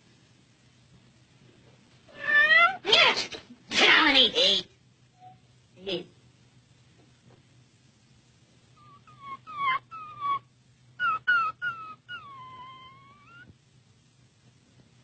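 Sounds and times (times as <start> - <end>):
cat meowing: 2.1 - 2.8, 11.0 - 13.5.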